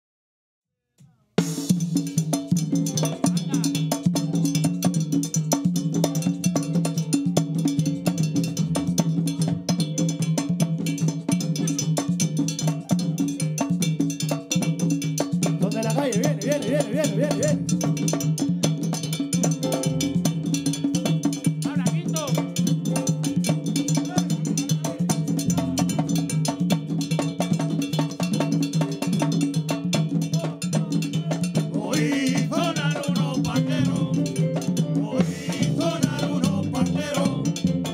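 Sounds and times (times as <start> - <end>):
hand frame drums: 1.0 - 37.9
scraped guiro: 15.5 - 22.4, 30.3 - 37.9
short vocal calls: 15.9 - 17.8.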